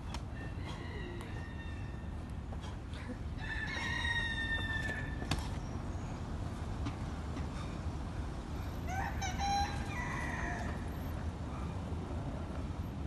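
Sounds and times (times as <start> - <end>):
rooster crowing: 0.4 - 2.0, 3.4 - 5.2, 8.9 - 11.0.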